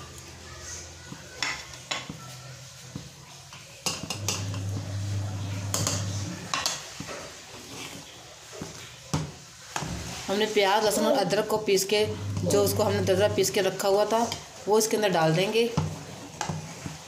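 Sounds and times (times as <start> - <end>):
spoon scraping metal pot: 4.1 - 7.0.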